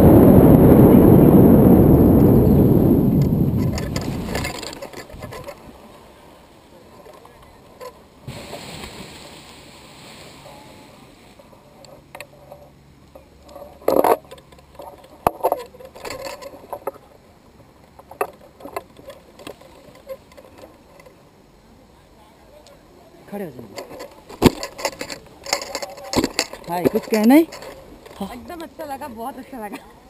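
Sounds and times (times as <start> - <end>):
wind on microphone: 0.0 - 5.8
straps and buckles rustling and clicking: 3.6 - 5.7, 11.4 - 17.0, 17.8 - 21.2, 23.6 - 29.0.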